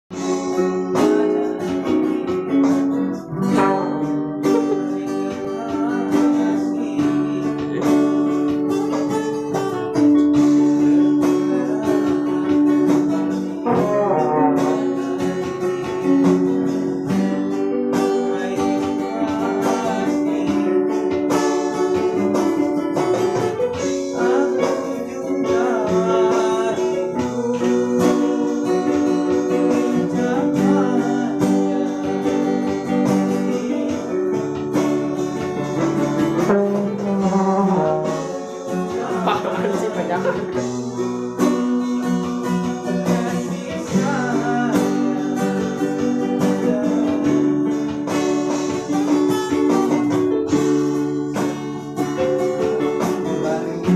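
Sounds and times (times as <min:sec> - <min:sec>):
acoustic guitar: 0:00.0 - 0:53.9
electronic keyboards: 0:00.1 - 0:53.9
steady beat: 0:00.1 - 0:53.9
trombone: 0:03.0 - 0:05.3, 0:13.0 - 0:17.0, 0:35.6 - 0:40.8.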